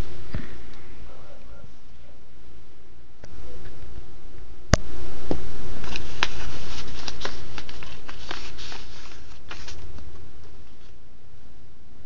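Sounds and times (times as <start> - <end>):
paper envelope rustling: 5.8 - 11.0.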